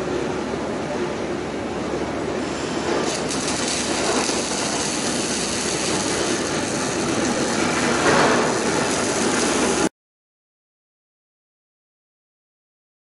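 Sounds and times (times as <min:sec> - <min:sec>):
welding arc hissing: 0:02.4 - 0:09.9.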